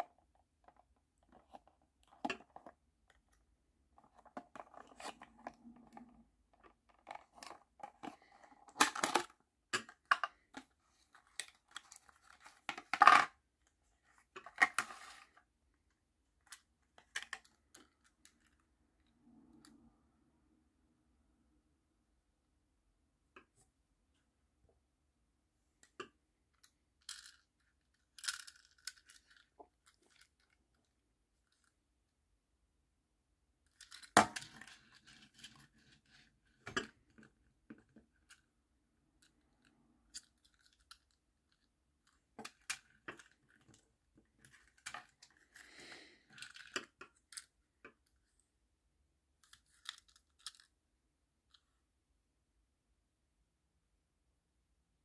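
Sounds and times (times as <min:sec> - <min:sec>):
toy handling clicks and taps: 0:49.4 - 0:50.7.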